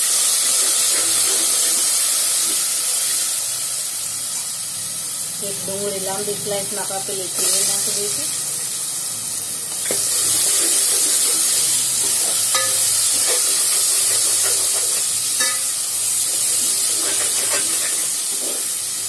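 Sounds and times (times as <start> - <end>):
onion sizzling in oil: 0.0 - 19.0
metal spoon scraping pot: 9.9 - 15.7, 16.5 - 18.6
spoon clinking against pot: 12.0 - 15.7.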